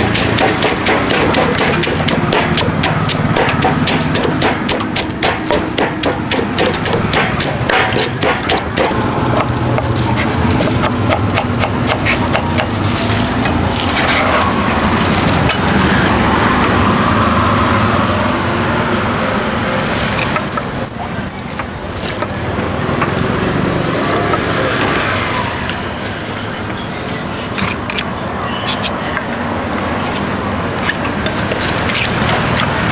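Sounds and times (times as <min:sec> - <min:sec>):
sharp knocks: 0:00.0 - 0:09.0
knife cutting on plastic board: 0:00.0 - 0:12.7
street traffic: 0:00.0 - 0:32.9.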